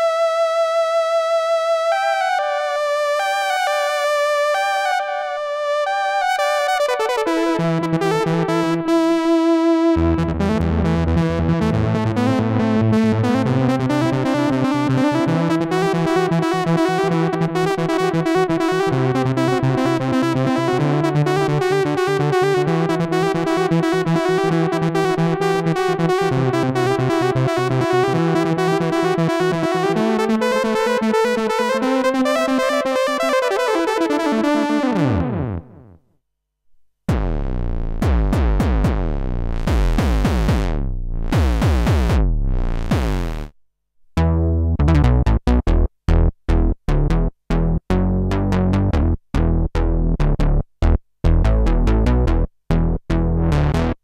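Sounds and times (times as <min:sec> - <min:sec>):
pulsing synthesizer patch: 0:37.1 - 0:43.5
synthesizer bass and wah-like sweeps: 0:37.1 - 0:43.5, 0:48.4 - 0:54.0.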